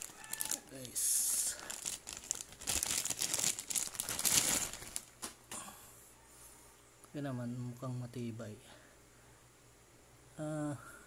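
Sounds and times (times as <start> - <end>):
plastic wrapping crinkling: 0.0 - 5.4.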